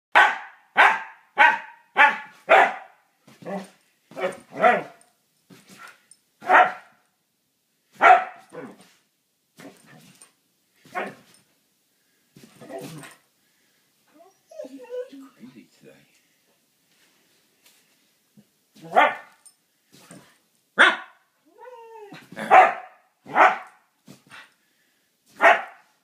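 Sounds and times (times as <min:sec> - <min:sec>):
dog barking: 0:00.1 - 0:05.0, 0:06.4 - 0:07.0, 0:08.0 - 0:08.8, 0:10.9 - 0:11.2, 0:18.8 - 0:19.4, 0:20.8 - 0:21.2, 0:22.4 - 0:23.8, 0:25.4 - 0:25.9.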